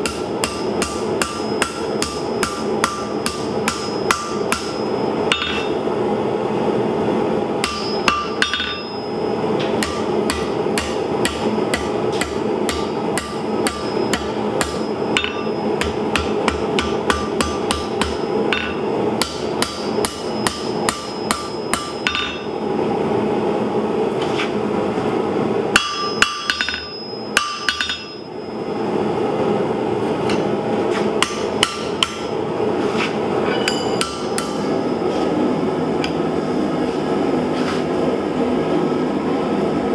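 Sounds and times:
hammer striking hot metal on anvil: 0.0 - 5.8, 7.6 - 22.6, 25.7 - 28.5, 31.2 - 32.4, 33.4 - 35.0
steady background noise: 0.0 - 39.9.

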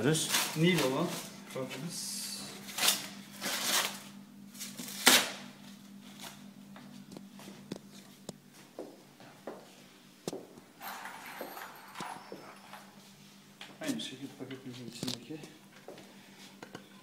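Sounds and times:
plastic packaging rustling: 2.6 - 6.4.

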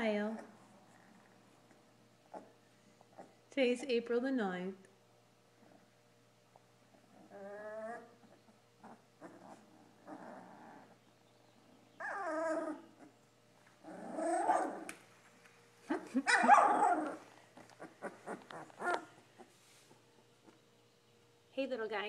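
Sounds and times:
puppy whining: 0.0 - 3.5, 6.9 - 15.0, 15.9 - 20.6.

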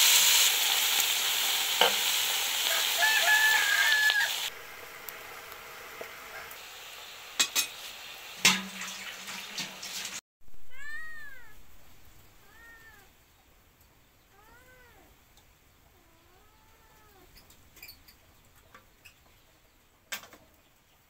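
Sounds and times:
wood fire crackling: 0.0 - 10.2
cat meowing: 10.6 - 11.6, 12.4 - 13.1, 14.3 - 15.1, 15.9 - 17.4.

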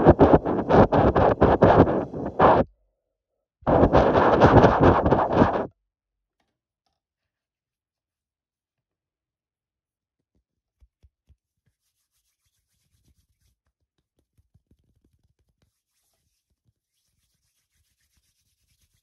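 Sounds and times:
palms rubbing on glass: 0.0 - 2.6, 3.7 - 5.7.

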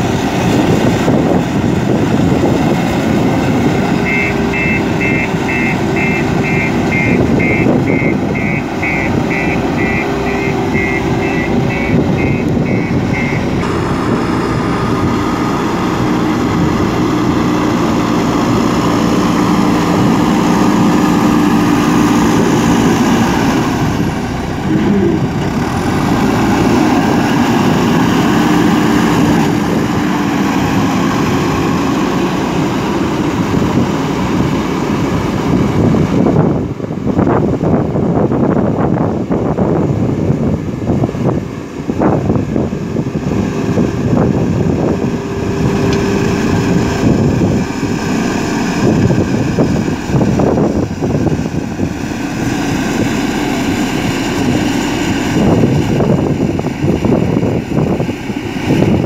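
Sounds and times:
backhoe loader diesel engine: 0.0 - 59.0
road roller diesel engine: 0.0 - 59.0
back-up alarm beeping: 4.0 - 13.7.

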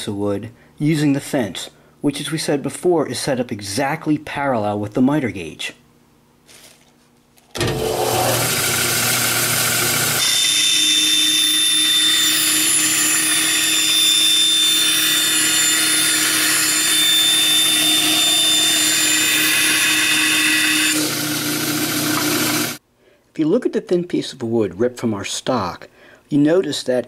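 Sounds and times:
motor hum: 7.5 - 22.8
bandsaw cutting wood: 7.6 - 22.8.

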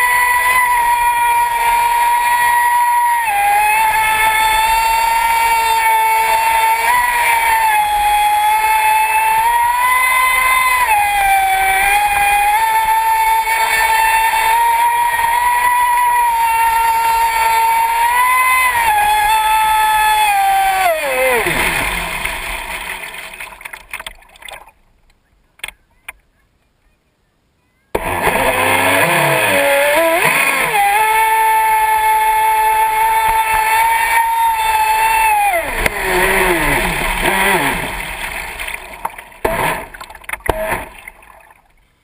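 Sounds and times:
electric motor whine: 0.0 - 23.2, 28.0 - 39.7
water splashing: 0.0 - 24.9, 28.0 - 41.8
rushing water: 16.7 - 24.8, 28.0 - 41.8.

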